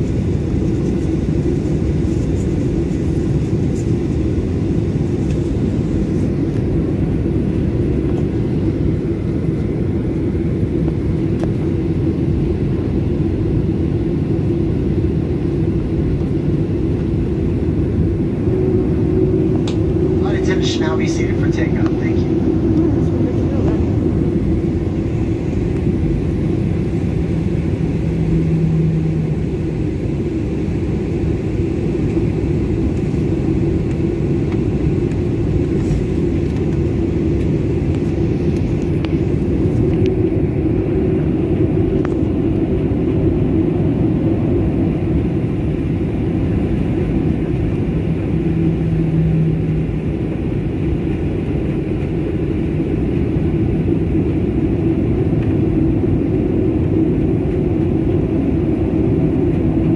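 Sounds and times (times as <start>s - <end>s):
aircraft cabin engine rumble: 0.0s - 59.9s.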